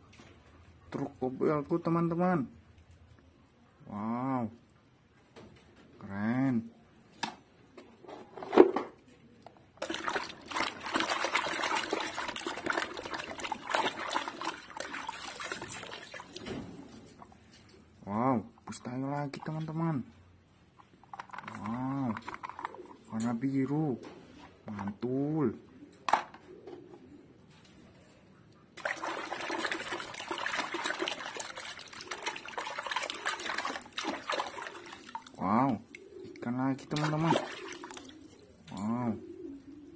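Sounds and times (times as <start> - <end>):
water splashing and sloshing: 9.8 - 18.0, 28.8 - 38.9.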